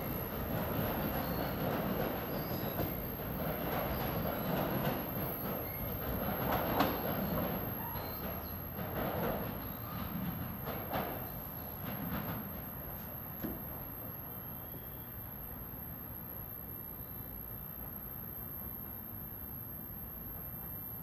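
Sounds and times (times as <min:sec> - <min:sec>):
high wheel squeals: 0:00.0 - 0:10.5
train wheels rumbling on rail: 0:00.0 - 0:14.8.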